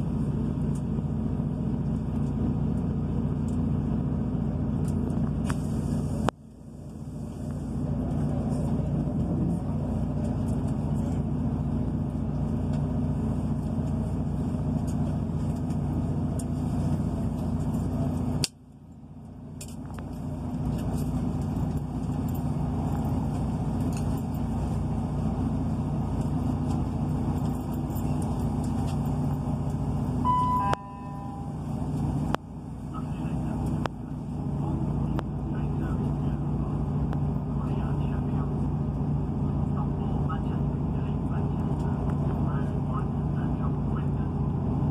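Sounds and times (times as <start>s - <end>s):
diesel engine drone: 0.0s - 44.9s
short beep: 30.2s - 31.8s.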